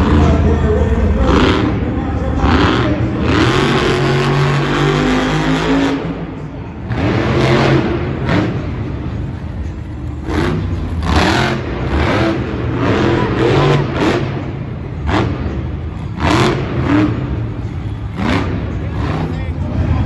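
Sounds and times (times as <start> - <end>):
truck engine revving hard: 0.0 - 20.0.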